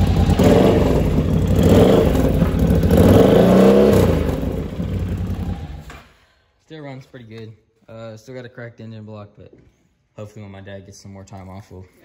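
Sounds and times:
engine revving: 0.0 - 6.0.

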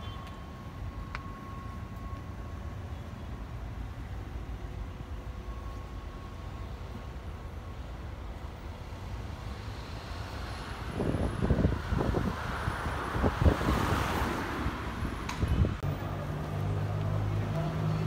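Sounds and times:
traffic rumble: 0.0 - 18.0
wind on microphone: 10.8 - 15.8.

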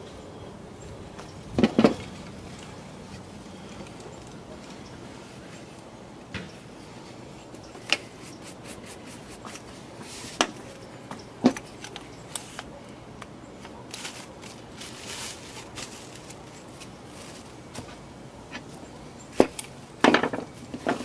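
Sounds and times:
brush scraping wood: 6.5 - 10.8, 13.9 - 18.7.

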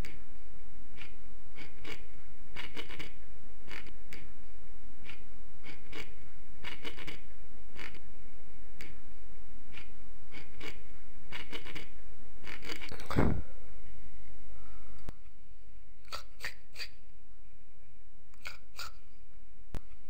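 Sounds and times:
steady hiss and low hum: 0.0 - 20.0
dry scratching scrapes: 1.0 - 4.0, 5.0 - 8.0, 9.7 - 13.2.

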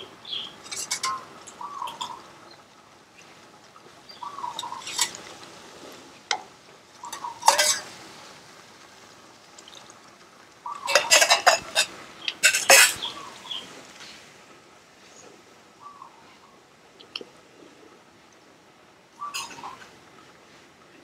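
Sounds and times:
metal spoon scraping a steel bowl: 0.7 - 1.3, 7.1 - 7.9, 10.9 - 13.0
wooden spoon stirring in a pan: 3.2 - 14.4.

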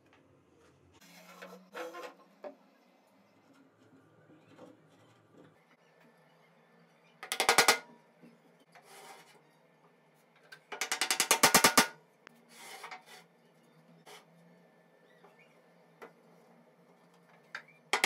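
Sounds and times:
faint scrape or rustle: 8.8 - 9.4, 12.4 - 13.3.

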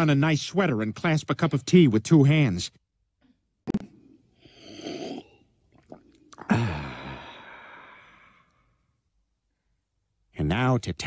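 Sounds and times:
man slurping tea: 3.7 - 8.3
man sighing ahh: 6.4 - 8.6.

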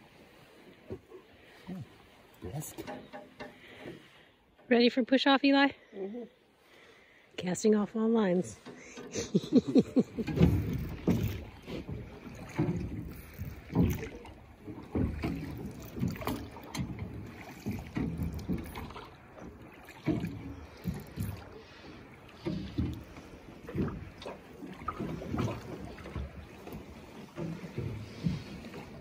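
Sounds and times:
water knocking against boat hull: 2.6 - 4.8, 8.6 - 29.0.

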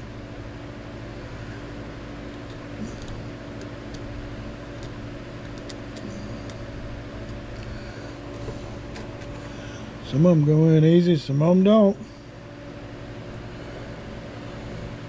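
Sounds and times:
steady mechanical hum: 0.0 - 15.0
pins pressed into wood ticking: 4.8 - 6.6.

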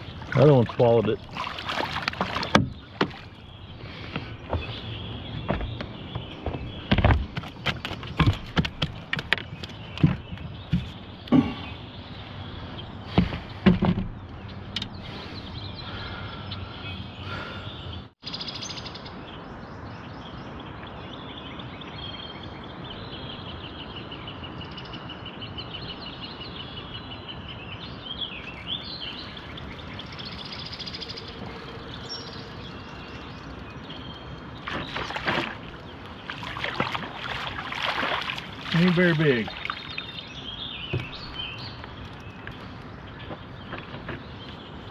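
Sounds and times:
birds singing and chirping: 0.0 - 44.9
outdoor background noise: 0.0 - 44.9
fish splashing at surface: 0.4 - 3.2, 34.6 - 40.1.

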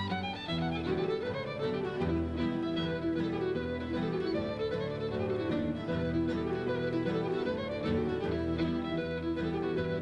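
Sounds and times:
fiddle playing a tune: 0.0 - 10.0.

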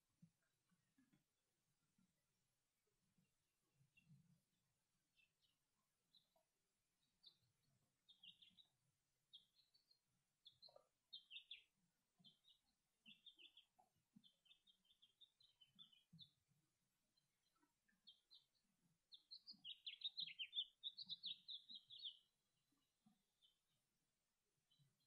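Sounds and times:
small birds chirping: 3.7 - 4.4, 5.1 - 23.9, 24.6 - 25.0.

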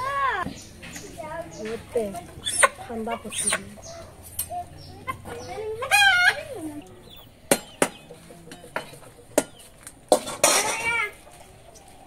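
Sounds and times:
chicken squawking: 2.4 - 4.2, 5.7 - 6.6.

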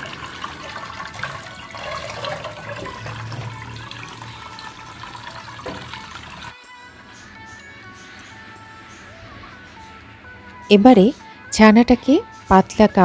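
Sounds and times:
tap water running: 0.0 - 6.6.

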